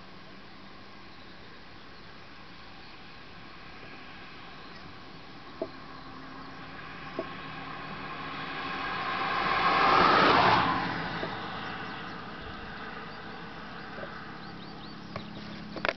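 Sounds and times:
vehicle passing by rushing: 5.4 - 15.6.

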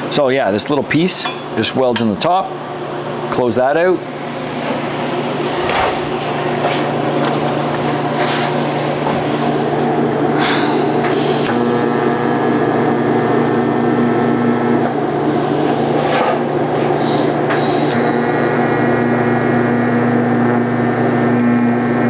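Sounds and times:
steady low hum: 0.0 - 22.0
welding arc crackling: 10.8 - 16.0, 17.6 - 22.0.

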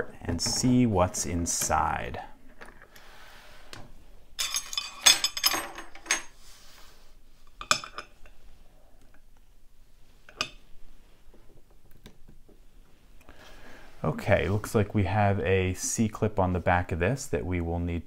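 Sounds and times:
metallic clinks and rattles: 4.4 - 6.4.

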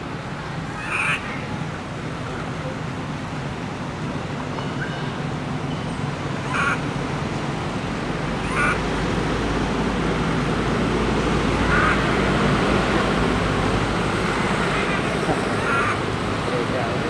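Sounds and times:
distant traffic rumble: 0.0 - 17.0
baby monkey crying: 0.7 - 1.4, 6.4 - 6.8, 8.4 - 8.8, 14.4 - 16.1.

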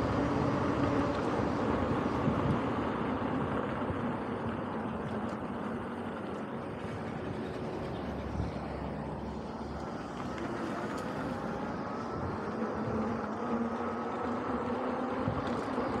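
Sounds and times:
tyre and wind noise: 0.0 - 16.0
electric motor whine: 4.5 - 16.0.

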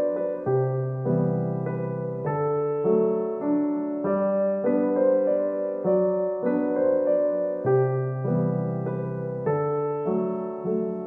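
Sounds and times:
soft piano chords: 0.0 - 11.0.

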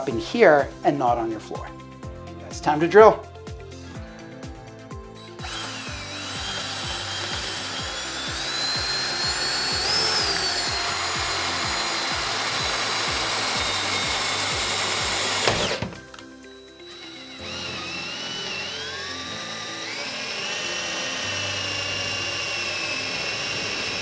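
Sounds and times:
music with steady beat: 1.6 - 19.0
cordless drill whining: 5.2 - 24.0.

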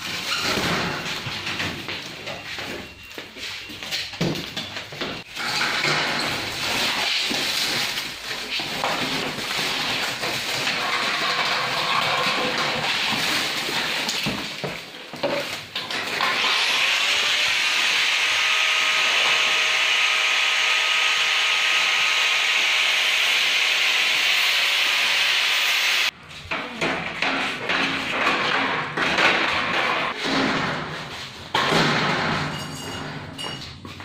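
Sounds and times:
metal shelving panels clattering: 0.0 - 1.9, 4.1 - 14.1, 26.5 - 33.8.

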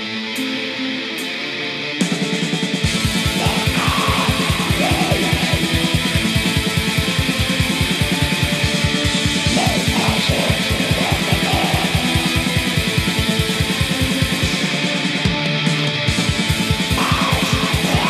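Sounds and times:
distorted electric guitar: 0.0 - 18.0
rapid kick-drum beats: 2.5 - 18.0.

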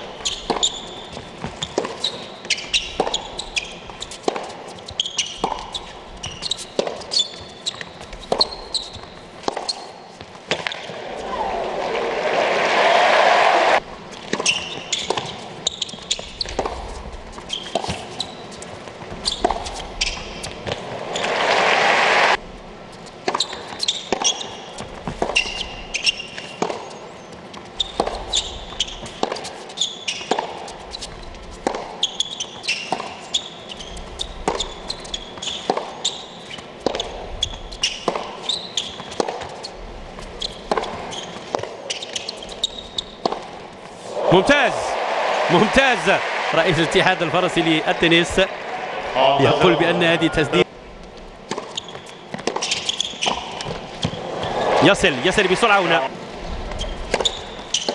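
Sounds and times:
tennis ball hits and bounces: 0.2 - 12.7, 13.7 - 22.4, 23.2 - 39.6, 40.2 - 49.0, 51.5 - 55.9, 56.8 - 57.9
crowd noise: 10.8 - 13.9, 20.7 - 22.4, 43.9 - 50.9, 54.1 - 56.7.

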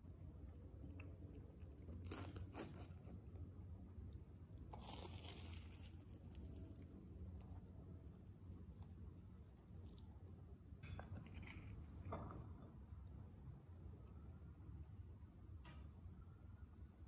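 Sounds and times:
chewing crunches: 0.8 - 3.3, 4.6 - 7.6
crunch of biting pastry: 0.9 - 3.4, 4.6 - 6.9
fork crackling pastry crust: 1.0 - 3.5, 4.1 - 8.0.

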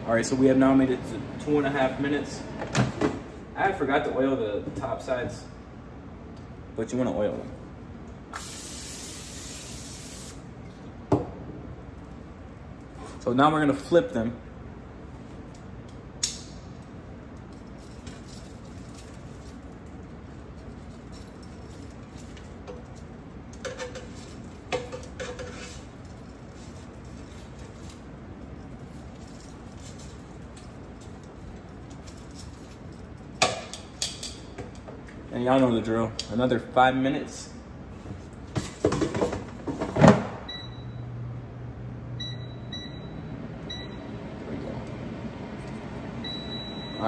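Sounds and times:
air fryer fan humming: 0.0 - 17.5, 37.8 - 47.0.

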